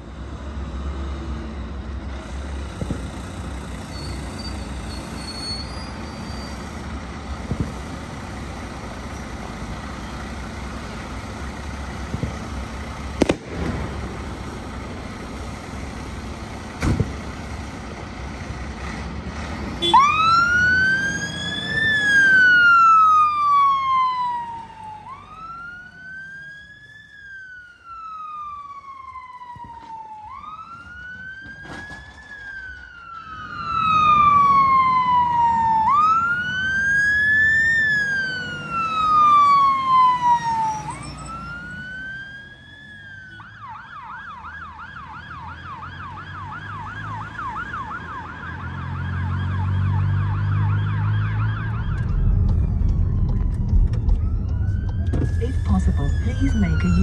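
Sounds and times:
fire engine siren: 0.9s - 18.0s, 19.7s - 57.0s
low engine rumble: 6.5s - 19.3s, 50.9s - 57.0s.

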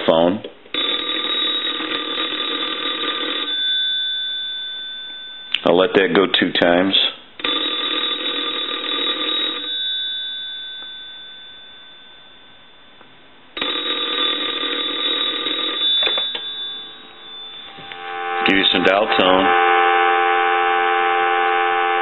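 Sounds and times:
telephone ringing: 0.7s - 5.6s, 7.4s - 13.0s, 13.6s - 22.0s.

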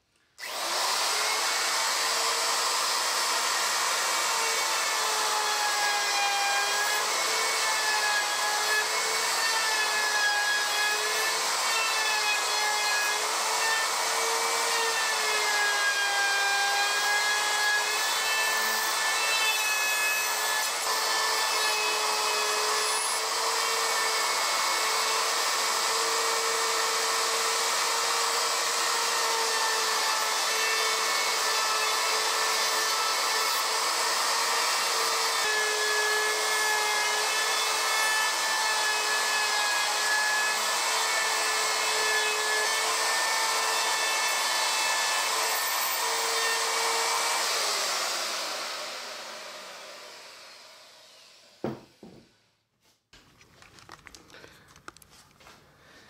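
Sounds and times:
router high whine: 0.4s - 19.6s.

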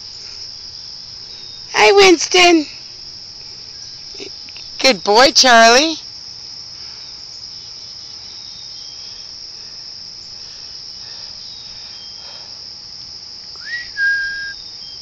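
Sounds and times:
insects trilling: 0.0s - 15.0s
rising whistle-like note: 13.6s - 14.6s.

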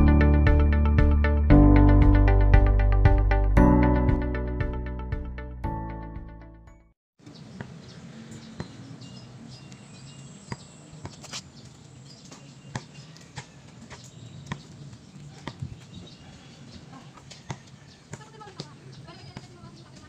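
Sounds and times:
bird chirps: 7.2s - 18.2s.

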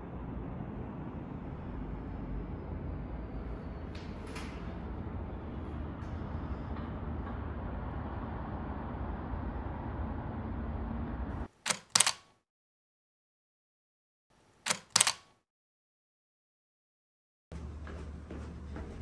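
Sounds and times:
camera shutter clicking: 11.7s - 12.3s, 14.7s - 15.3s.

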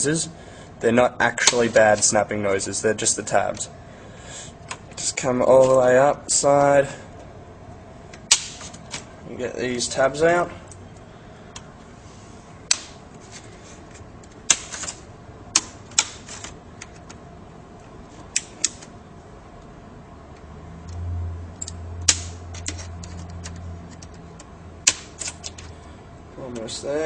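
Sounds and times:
low hum: 16.6s - 26.4s.

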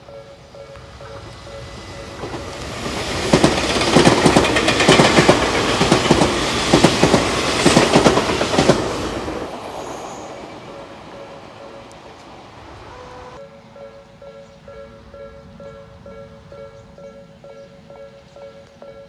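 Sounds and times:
train passing at speed: 0.0s - 19.0s
train wheels clacking over rail joints: 0.8s - 9.6s.

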